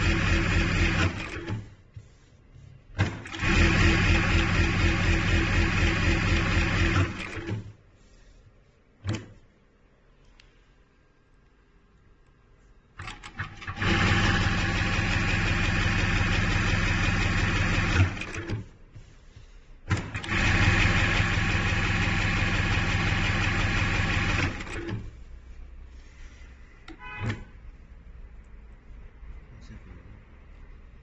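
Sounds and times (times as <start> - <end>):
sewing machine running: 0.0 - 1.6, 3.1 - 7.5, 13.0 - 18.5, 19.9 - 25.0.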